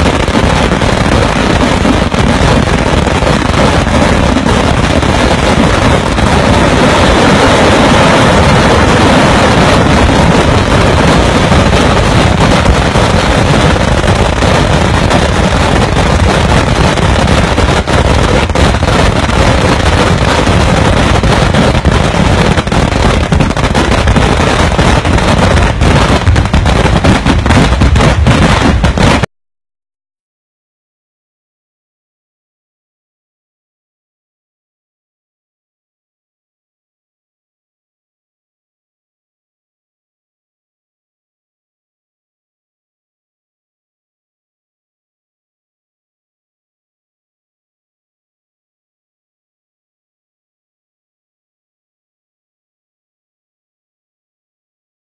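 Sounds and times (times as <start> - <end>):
fireworks crackling and banging: 0.0 - 29.3.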